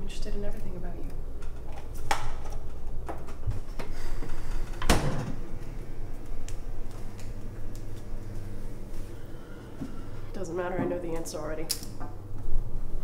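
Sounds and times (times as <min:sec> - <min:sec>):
refrigerator door shutting: 0:04.8 - 0:05.5.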